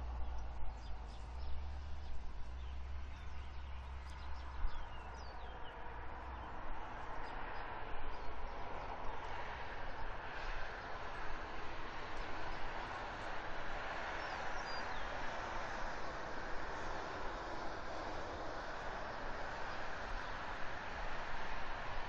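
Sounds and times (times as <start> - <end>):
small birds chirping: 0.1 - 9.3, 14.1 - 15.2.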